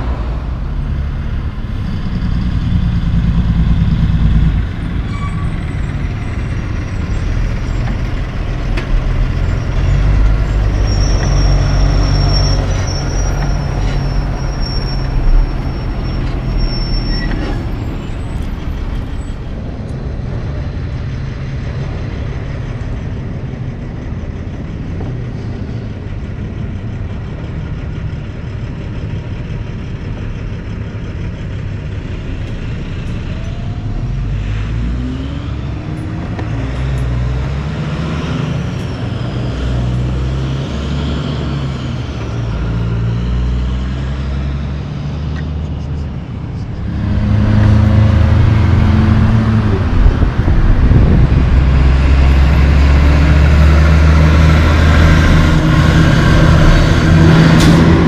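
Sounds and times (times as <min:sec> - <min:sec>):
traffic noise: 0:00.0 - 0:58.0
trucks engine rumble: 0:00.0 - 0:58.0
high thin squeal: 0:05.0 - 0:06.0, 0:09.4 - 0:19.4.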